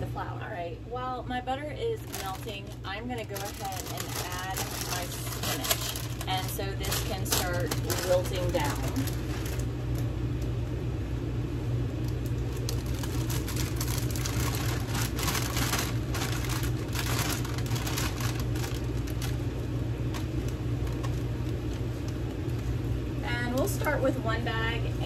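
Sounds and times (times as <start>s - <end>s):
low hum: 0.0s - 25.0s
plastic bag crinkling: 1.8s - 10.1s, 12.0s - 22.9s.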